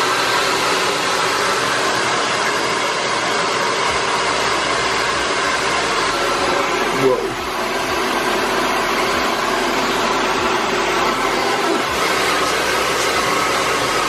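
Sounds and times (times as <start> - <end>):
hair dryer blowing: 0.0 - 14.0.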